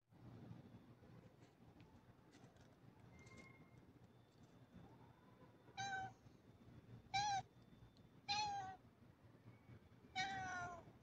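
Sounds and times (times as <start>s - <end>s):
cat meowing: 5.8s - 6.2s, 7.2s - 7.4s, 8.3s - 8.8s, 10.2s - 10.8s.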